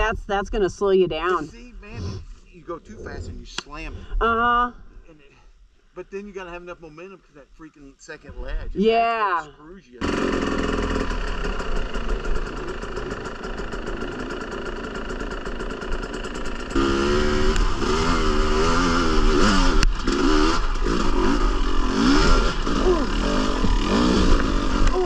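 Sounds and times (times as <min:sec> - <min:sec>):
dirt bike engine revving: 0:10.0 - 0:25.0.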